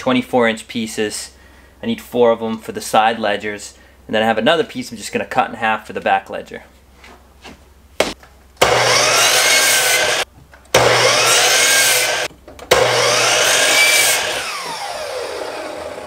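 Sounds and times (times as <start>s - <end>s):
miter saw motor whining: 8.6s - 10.2s, 10.8s - 16.0s
saw blade cutting wood: 8.6s - 10.2s, 10.8s - 16.0s.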